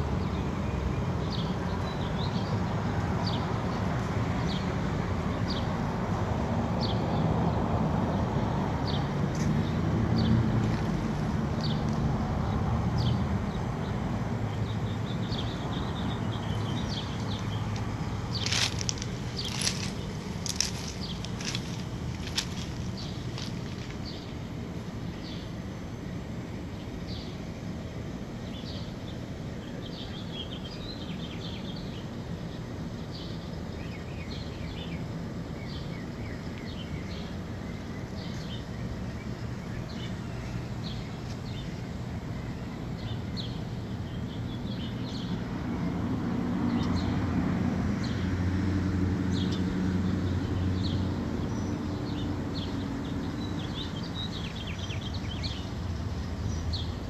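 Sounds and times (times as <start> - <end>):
birds chirping: 8.9 - 26.0, 28.4 - 45.4, 50.5 - 57.0
steady low rumble: 15.0 - 25.1.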